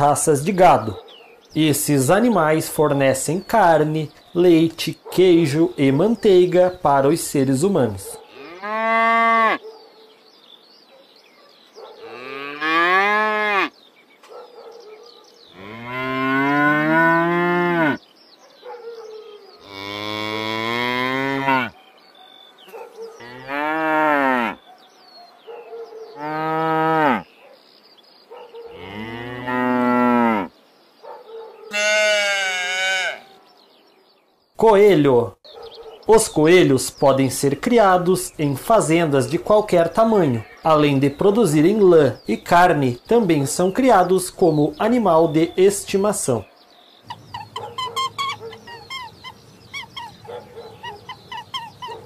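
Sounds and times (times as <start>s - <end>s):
cows mooing: 8.2s - 9.6s, 12.0s - 13.7s, 15.5s - 18.0s, 19.6s - 21.8s, 23.2s - 24.6s, 26.2s - 27.2s, 28.7s - 30.5s, 31.7s - 33.4s, 47.1s - 52.0s.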